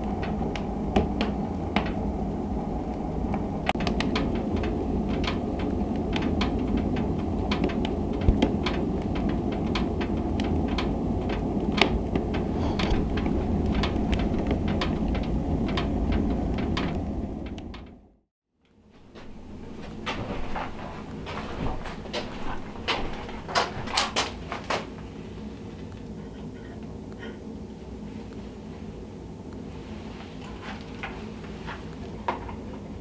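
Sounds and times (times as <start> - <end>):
wood fire crackling and popping: 0.0 - 18.1, 19.1 - 26.9
low rumble of stove: 0.0 - 33.0.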